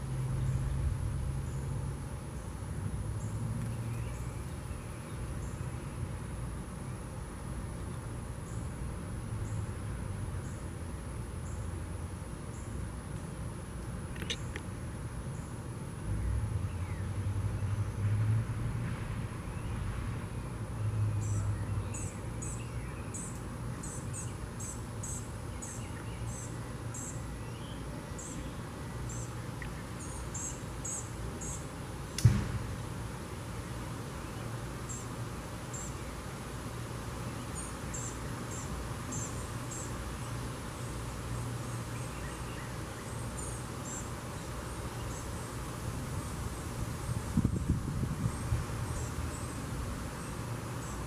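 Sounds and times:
sharp knock: 32.2 - 32.7.

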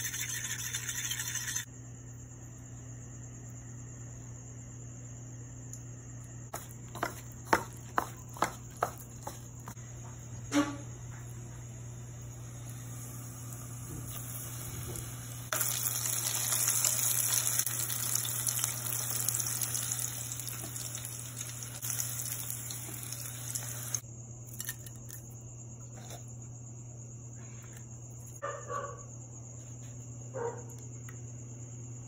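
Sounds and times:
food sizzling in hot oil: 12.1 - 24.0.

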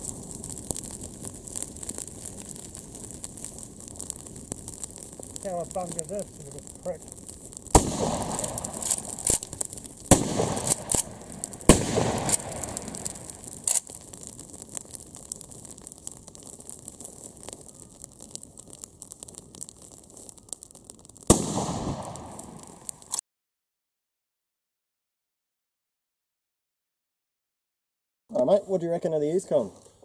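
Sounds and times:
smaller cracks: 0.0 - 23.2
shotgun shots with echo: 7.8 - 9.5, 10.1 - 13.0, 21.3 - 22.5.

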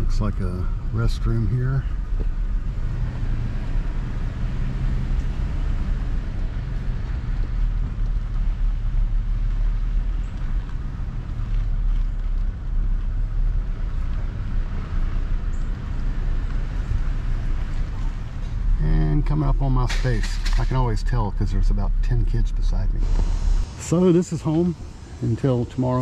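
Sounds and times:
car engine and road drone: 0.0 - 26.0
rushing noise: 19.3 - 26.0.

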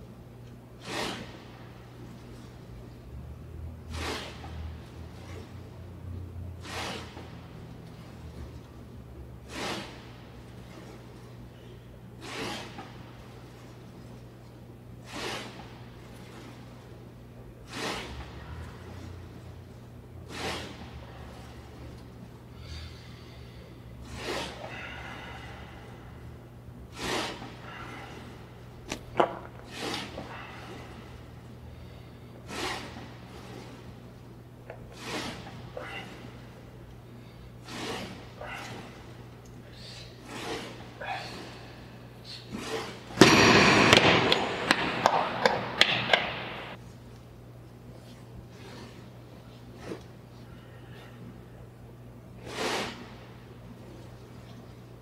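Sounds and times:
steady low hum: 0.0 - 55.0
hard hissing breaths out: 0.8 - 1.6, 9.4 - 11.0, 11.6 - 13.6, 17.7 - 19.4, 20.2 - 21.9, 22.5 - 28.8, 29.6 - 34.0, 34.8 - 45.8, 52.4 - 53.4.

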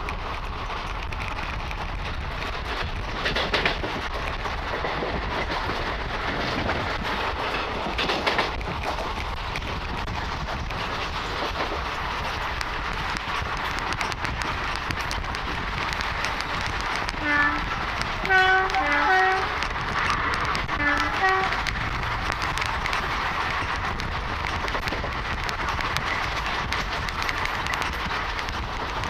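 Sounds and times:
train wheel and wind noise: 0.0 - 29.0
two-tone train horn blasts: 17.2 - 19.6, 20.7 - 21.6.

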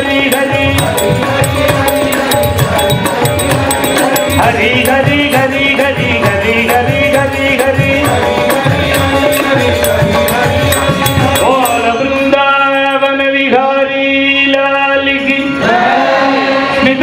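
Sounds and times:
harmonium: 0.0 - 17.0
man singing: 0.0 - 17.0.

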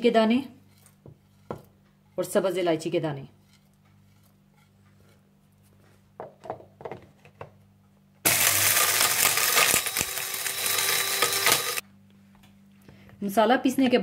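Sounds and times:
electric spice grinder running: 8.3 - 11.8.

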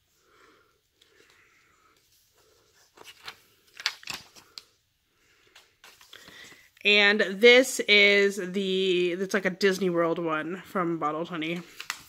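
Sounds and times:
paper pages rustling: 1.0 - 4.8, 5.4 - 6.7, 11.4 - 12.0.

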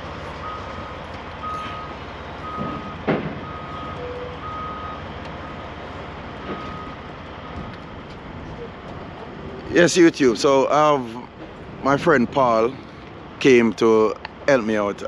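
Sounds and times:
vehicle backup alarm beeping: 0.0 - 8.0.

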